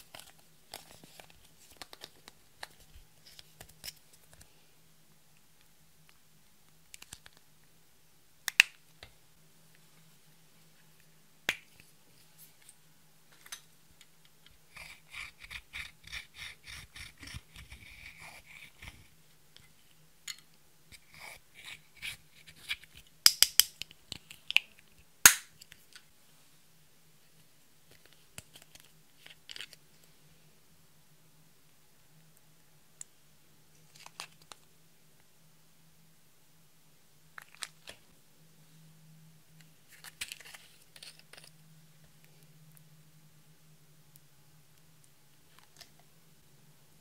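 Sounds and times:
faint low hum: 0:00.0 - 0:47.0
tool scraping eyeshadow: 0:14.7 - 0:19.1.

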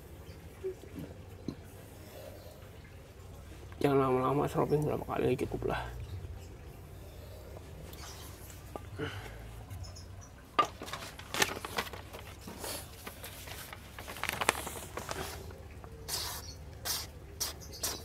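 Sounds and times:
scraping and rustling: 0:10.6 - 0:15.6
paper rustling: 0:10.6 - 0:16.4.

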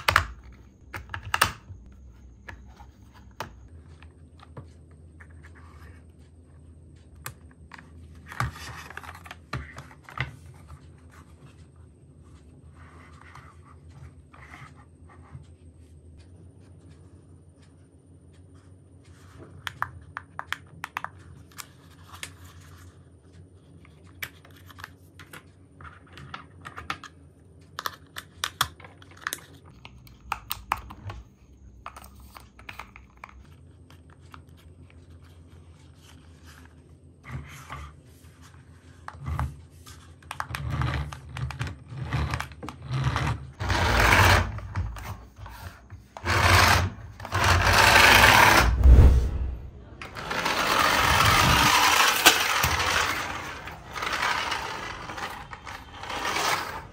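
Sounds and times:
toy car electric motor whirring: 0:40.5 - 0:48.8, 0:50.1 - 0:56.9.

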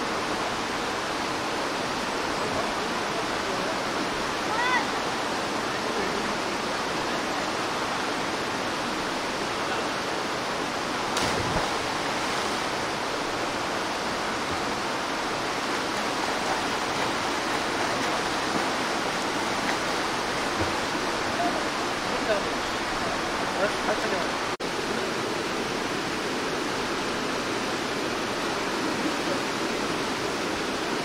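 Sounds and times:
stream rapids rushing: 0:00.0 - 0:31.0.

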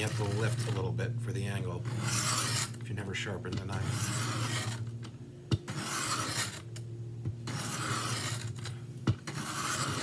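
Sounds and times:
knife scraping on sharpening plate: 0:01.9 - 0:02.8, 0:03.8 - 0:04.8, 0:05.7 - 0:06.6, 0:07.5 - 0:08.5, 0:09.2 - 0:10.0.

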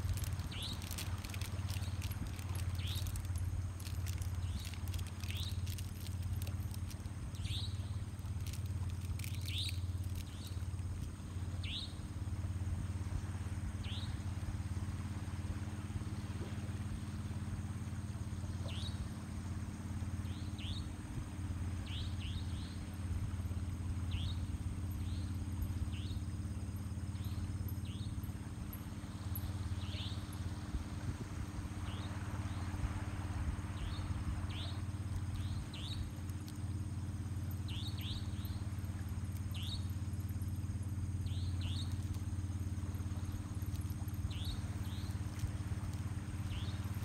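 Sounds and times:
small animal chirping: 0:00.0 - 0:10.6
faint clicks: 0:00.0 - 0:11.2
steady low hum: 0:00.0 - 0:47.0.

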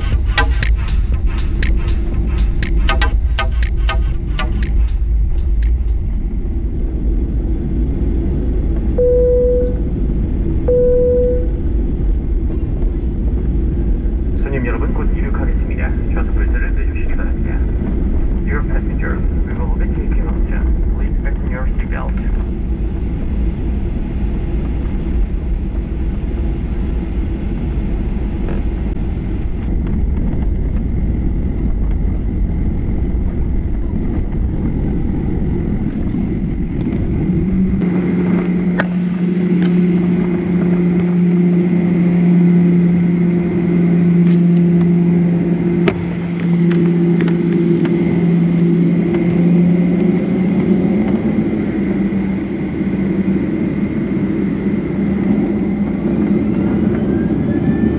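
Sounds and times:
sharp clicks: 0:00.0 - 0:06.0
aircraft engines rumbling: 0:00.0 - 0:57.9
low droning tones: 0:00.0 - 0:57.9.

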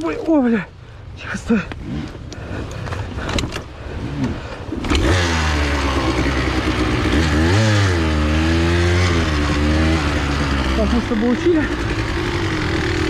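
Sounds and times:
dirt bike engine running: 0:04.0 - 0:13.0.

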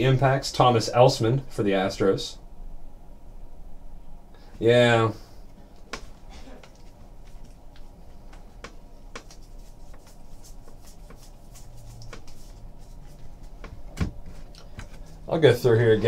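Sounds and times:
cards sliding against each other: 0:09.1 - 0:13.2.

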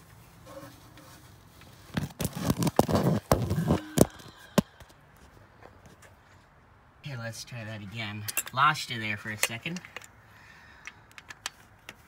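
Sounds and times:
phone knocking and scraping: 0:01.9 - 0:04.2.

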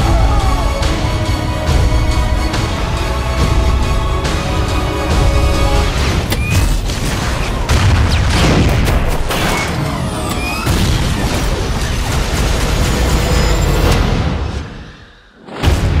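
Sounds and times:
trailer music: 0:00.0 - 0:16.0
explosions and crashing impacts: 0:05.9 - 0:14.7, 0:15.4 - 0:16.0.

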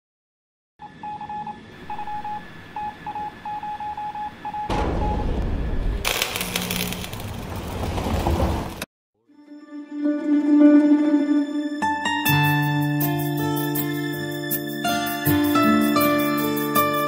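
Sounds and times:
morse code beeps: 0:00.8 - 0:05.3
rushing static noise: 0:05.8 - 0:08.8.

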